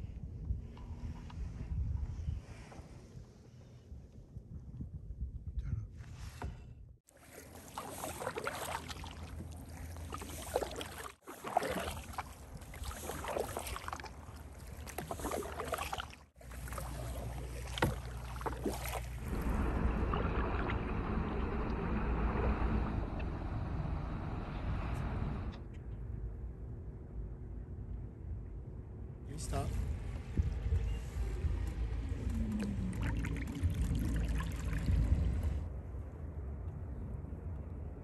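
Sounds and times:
paddle splashing in water: 7.1s - 23.7s, 32.4s - 35.6s
low rumble: 19.1s - 38.0s.

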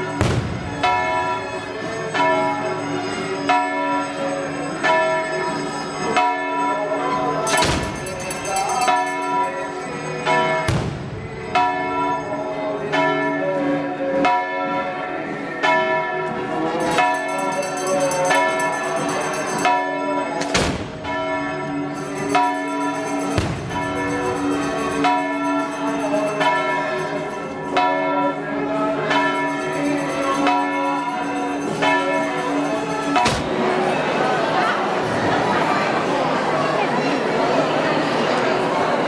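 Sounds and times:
church bells ringing: 0.0s - 35.0s
sharp bangs: 0.1s - 1.5s, 10.7s - 11.4s, 20.4s - 21.2s, 33.2s - 33.6s.

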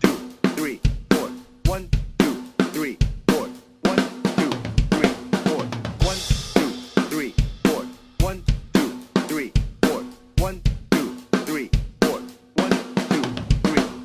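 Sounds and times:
drum kit rock groove: 0.0s - 14.0s.

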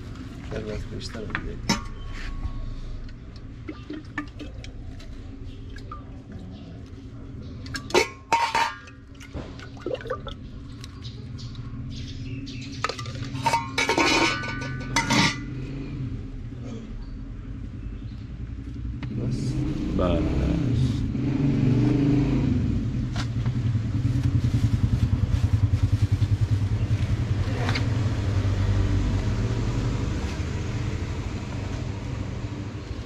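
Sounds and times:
steel dishes clinking: 7.8s - 9.0s, 13.3s - 15.5s.

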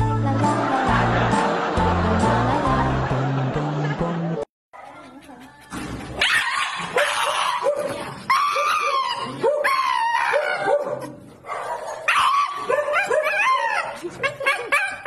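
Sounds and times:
dog yowling: 4.8s - 11.1s
dog yelping: 4.8s - 15.0s.

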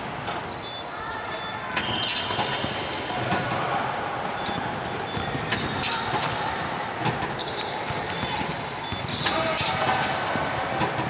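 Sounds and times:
reverberant gym background: 0.0s - 11.0s
basketball knocking on rim and floor: 4.5s - 6.4s.

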